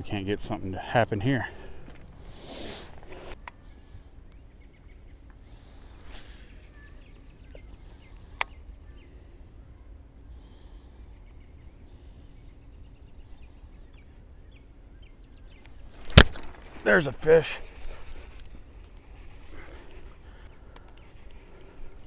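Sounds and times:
faint bird chirps: 3.6 - 16.0.

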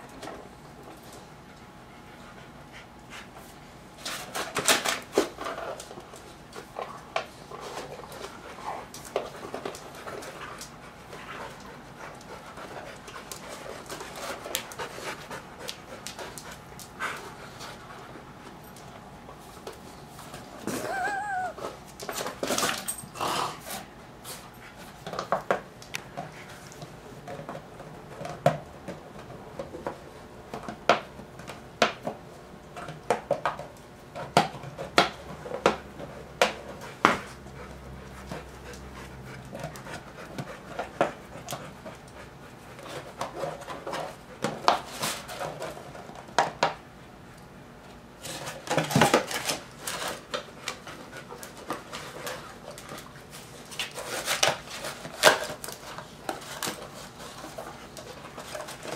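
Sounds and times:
dogs panting: 1.1 - 3.6, 6.8 - 18.9, 36.0 - 44.6.

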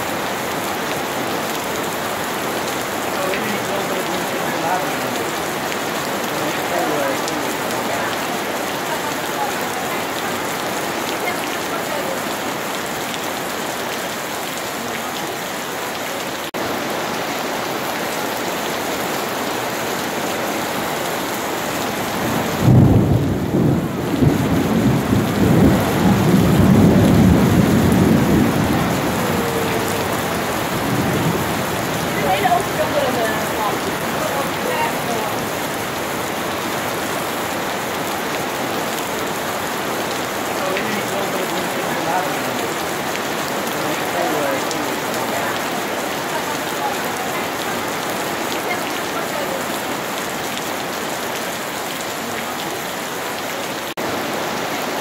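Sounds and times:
heavy rain on paving and water: 0.0 - 55.0
rolling thunder rumble: 22.0 - 36.2.

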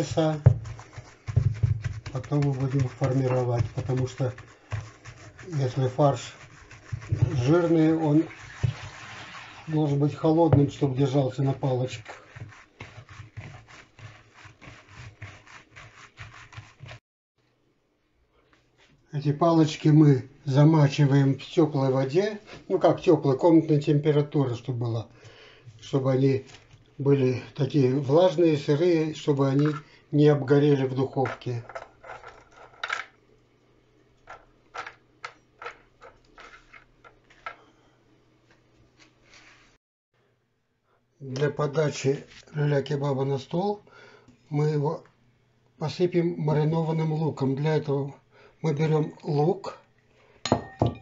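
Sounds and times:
hands kneading and slapping meat: 0.0 - 9.0.

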